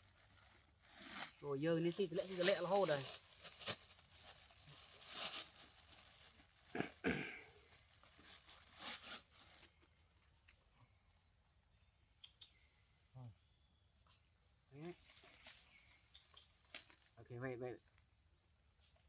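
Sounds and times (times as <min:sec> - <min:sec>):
plastic bag crinkling: 0:02.1 - 0:06.8, 0:07.6 - 0:09.6.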